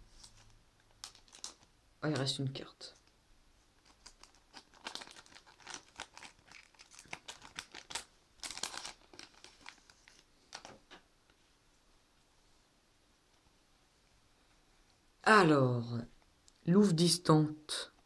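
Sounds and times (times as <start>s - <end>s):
foil wrapper crinkling: 0.2s - 1.7s, 3.8s - 10.8s.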